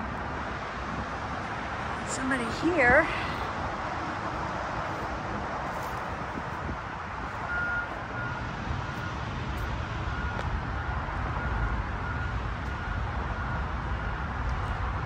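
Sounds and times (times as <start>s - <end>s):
distant city traffic: 0.0s - 15.0s
faint high beeps: 7.4s - 9.2s.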